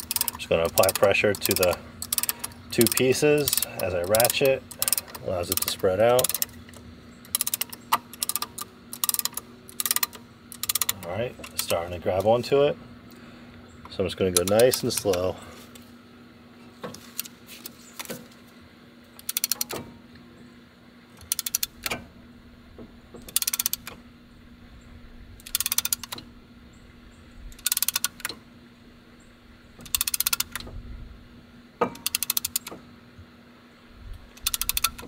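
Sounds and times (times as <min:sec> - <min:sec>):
hand ratchet clicking: 0:00.0 - 0:12.3, 0:14.3 - 0:15.4, 0:19.2 - 0:19.8, 0:21.2 - 0:22.0, 0:23.2 - 0:24.0, 0:25.4 - 0:26.2, 0:27.5 - 0:28.4, 0:29.8 - 0:30.7, 0:31.8 - 0:32.8, 0:34.3 - 0:35.0.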